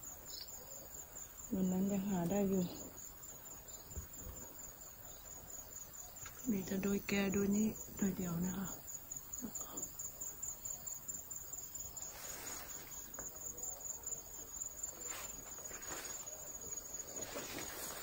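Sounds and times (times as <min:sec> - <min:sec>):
insects trilling: 0:00.0 - 0:18.0
leaves rustling: 0:11.7 - 0:18.0.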